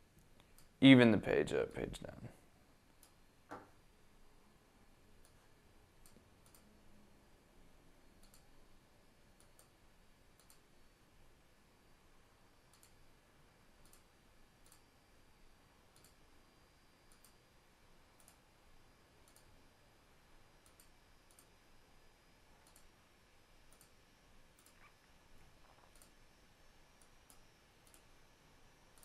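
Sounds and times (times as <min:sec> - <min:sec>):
computer mouse clicks: 0:06.0 - 0:06.7, 0:08.2 - 0:08.5, 0:09.4 - 0:09.8, 0:10.4 - 0:10.6, 0:12.7 - 0:13.0, 0:13.8 - 0:14.9, 0:15.9 - 0:16.2, 0:17.1 - 0:17.4, 0:18.2 - 0:18.4, 0:19.2 - 0:19.5, 0:20.6 - 0:21.5, 0:22.6 - 0:22.9, 0:23.7 - 0:24.9, 0:25.6 - 0:26.2, 0:27.0 - 0:28.1.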